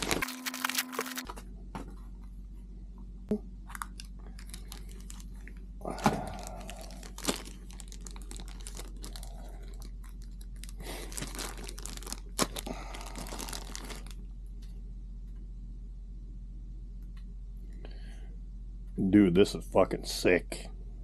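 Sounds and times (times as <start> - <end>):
plastic bag crinkling: 0.0 - 1.3, 3.7 - 14.2
steady low hum: 0.0 - 21.0.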